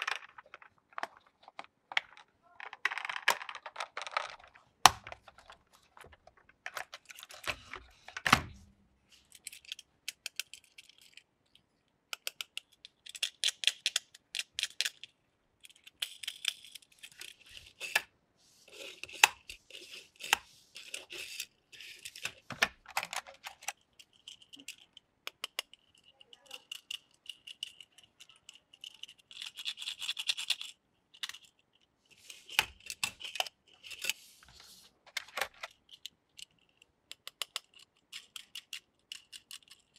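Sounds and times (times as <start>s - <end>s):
toy cars rattling and clacking: 12.1s - 18.1s, 18.7s - 34.2s, 35.1s - 39.9s.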